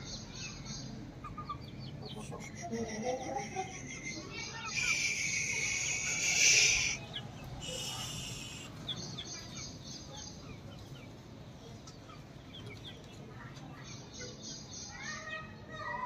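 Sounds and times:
faint high peeps and chirps: 0.0 - 16.0
chicken shrill call: 4.7 - 8.7.

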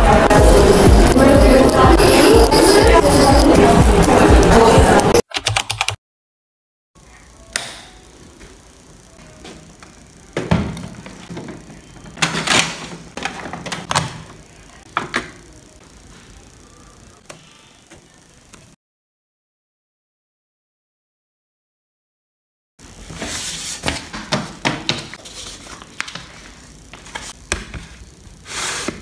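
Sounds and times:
background music: 0.0 - 5.2.

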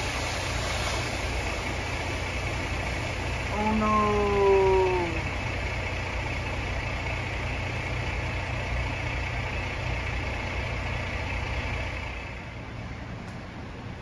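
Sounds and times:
water gushing from fire hydrant: 0.0 - 12.5.

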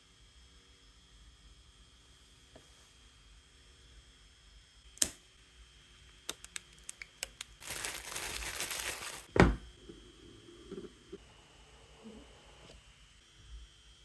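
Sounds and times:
cellophane crinkling: 6.3 - 9.3.

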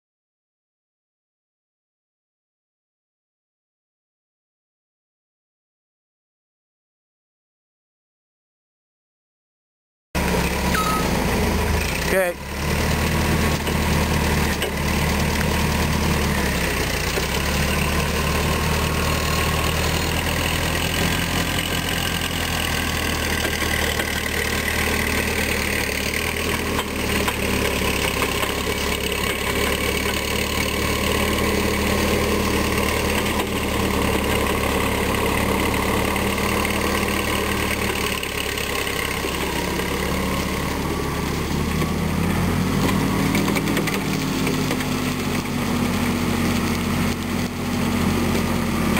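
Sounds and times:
forklift engine running: 10.2 - 48.9.

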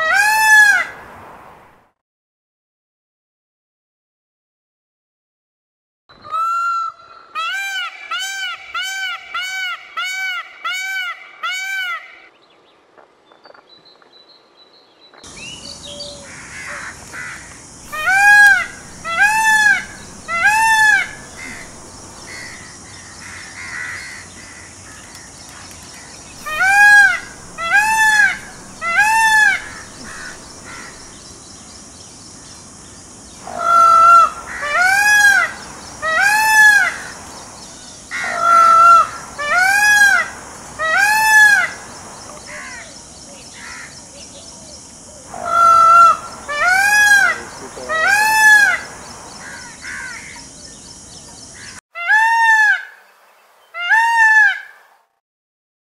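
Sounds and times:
peacock calling: 0.0 - 1.0, 6.2 - 12.3, 15.2 - 31.4, 33.3 - 53.0, 53.7 - 54.8.

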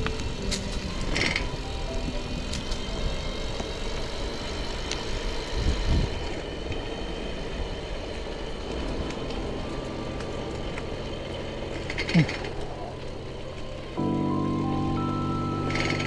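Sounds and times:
low rumble: 0.0 - 16.0
road and wind noise: 0.0 - 16.0.

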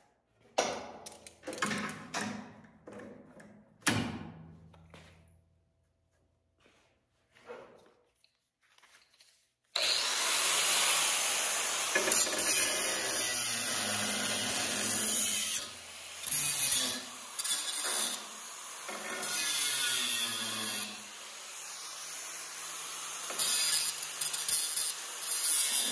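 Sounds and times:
angle grinder grinding steel: 9.8 - 25.9.

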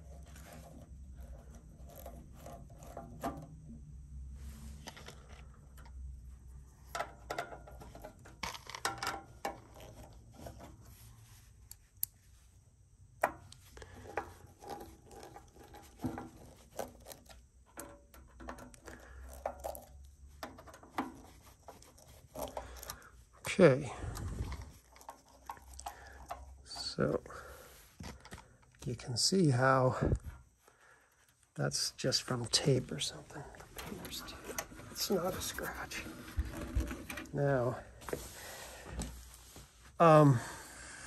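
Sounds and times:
low steady hum: 0.0 - 41.0
hands handling small parts: 4.5 - 12.3, 13.2 - 28.9.

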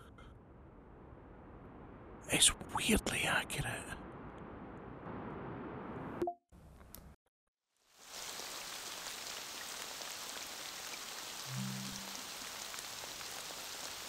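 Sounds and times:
brighter steady hiss: 7.8 - 14.0.

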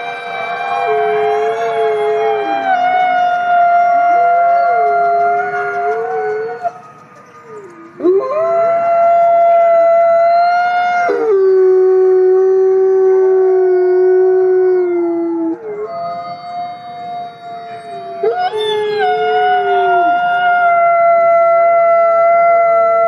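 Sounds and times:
wolves howling: 0.0 - 23.0.

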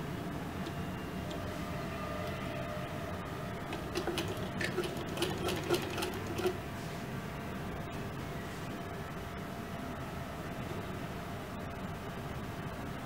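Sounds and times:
steady background noise: 0.0 - 13.0
sewing machine needle clicking: 3.7 - 6.6.

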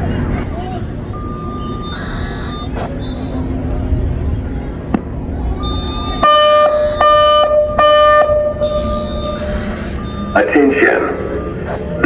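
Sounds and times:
low outdoor rumble: 0.0 - 12.0
outdoor warning speaker alert tones: 1.0 - 3.6, 5.5 - 12.0.

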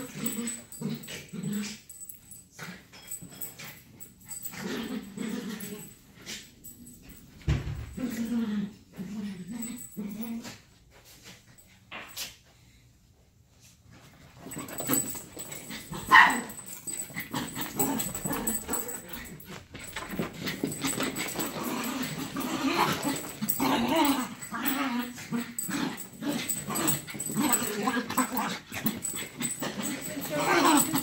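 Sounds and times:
scuffling and knocks: 13.9 - 24.5.

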